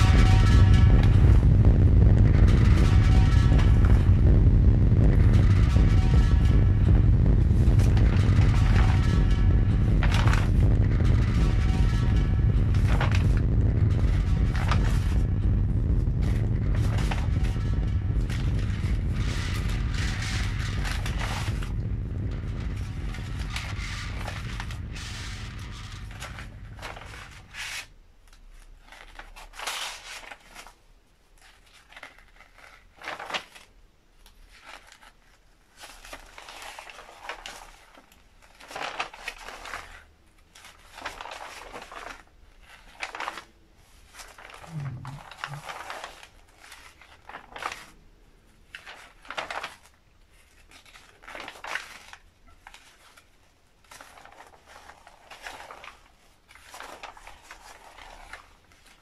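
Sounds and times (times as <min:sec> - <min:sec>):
paper pages rustling: 0:22.8 - 0:30.7, 0:31.4 - 0:33.7, 0:34.4 - 0:48.0, 0:48.7 - 0:59.0.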